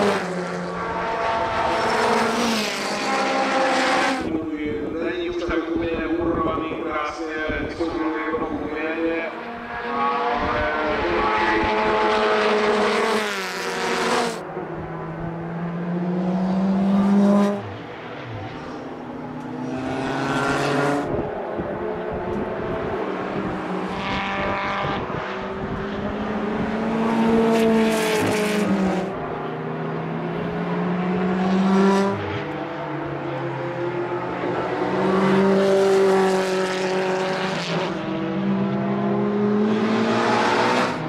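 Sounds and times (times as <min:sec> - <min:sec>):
racing cars passing at speed: 0:00.0 - 0:41.0
wind rumbling on microphone: 0:04.3 - 0:08.7, 0:20.8 - 0:29.0.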